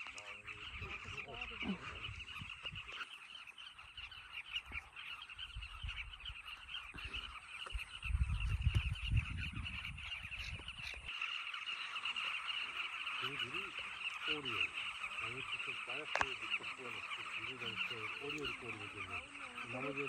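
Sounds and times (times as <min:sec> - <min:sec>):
chorus of bird calls: 0:00.0 - 0:20.0
wind buffeting microphone: 0:00.5 - 0:03.0, 0:04.0 - 0:11.1.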